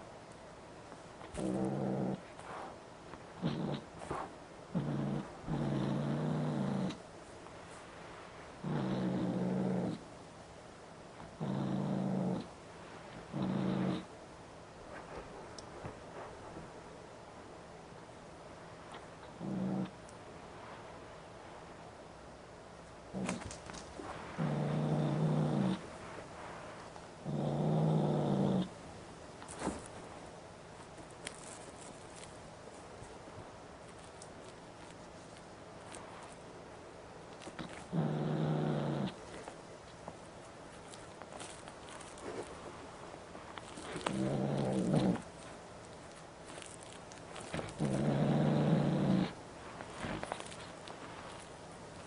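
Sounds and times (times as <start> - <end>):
kitten growling low: 1.4 - 2.3, 3.4 - 7.0, 8.6 - 10.0, 11.4 - 12.5, 19.2 - 20.0, 24.3 - 25.9, 27.2 - 28.8, 37.5 - 39.2, 43.7 - 45.4, 47.5 - 49.4.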